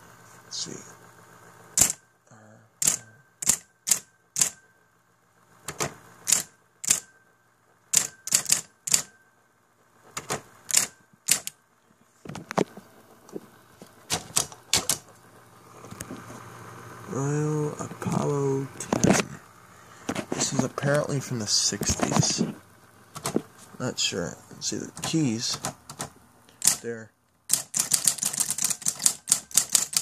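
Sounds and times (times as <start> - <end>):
faint typewriter motor hum: 0.5 - 4.8, 5.4 - 9.2, 10.0 - 11.6, 12.2 - 30.0
electric typewriter clacking: 1.8 - 2.0, 2.8 - 4.6, 5.6 - 7.1, 7.9 - 9.1, 10.1 - 11.6, 14.1 - 15.2, 20.2 - 23.5, 24.6 - 30.0.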